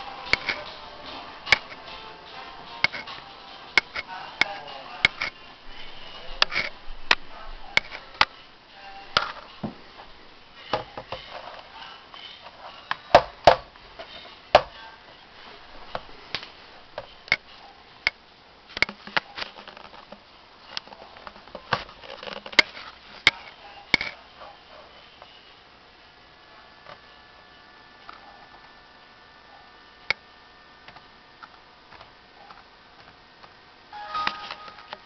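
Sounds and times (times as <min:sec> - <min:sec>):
laptop handling clicks and knocks: 0:18.8 - 0:20.2, 0:21.2 - 0:24.2.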